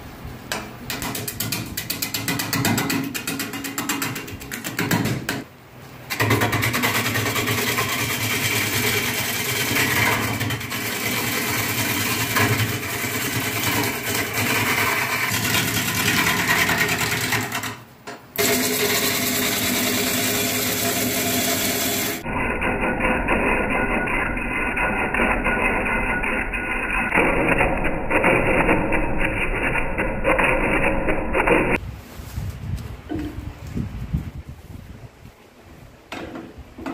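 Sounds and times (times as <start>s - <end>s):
wood lathe gouge cutting: 6.2s - 17.7s, 18.4s - 22.8s.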